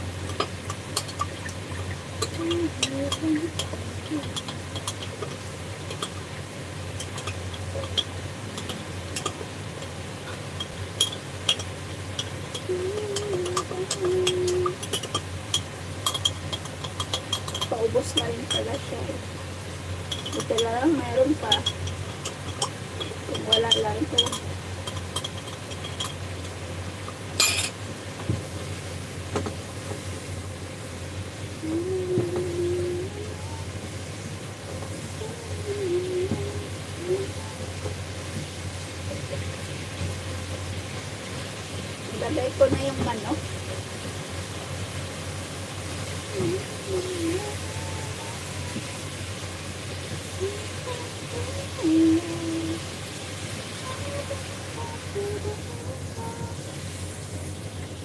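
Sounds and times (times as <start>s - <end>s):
steady low hum: 0.0s - 58.0s
spoon clattering: 2.2s - 6.2s, 7.0s - 9.4s, 10.6s - 18.9s, 20.0s - 26.5s, 27.4s - 27.8s
brief steady tone: 53.8s - 56.6s.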